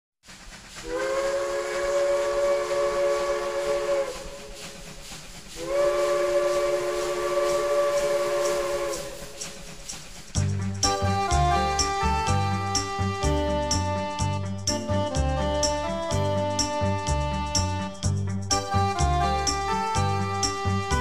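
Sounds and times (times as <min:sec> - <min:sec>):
steam hissing: 0:00.2 - 0:14.0
steam whistle blasts: 0:00.8 - 0:09.8, 0:10.8 - 0:17.9, 0:18.6 - 0:21.0.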